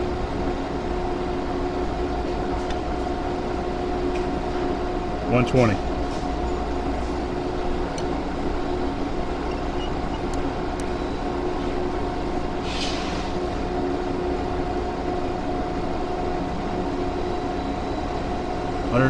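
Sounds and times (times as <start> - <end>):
machinery humming drone: 0.0 - 19.0
brief hiss: 12.6 - 13.3.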